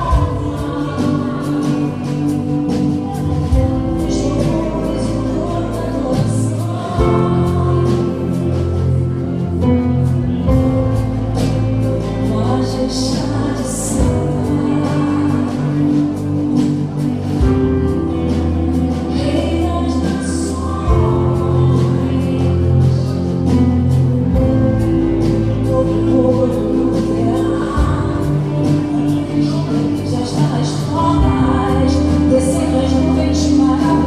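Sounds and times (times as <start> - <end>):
voices singing: 0.0 - 9.6
live gospel band playing: 0.0 - 34.0.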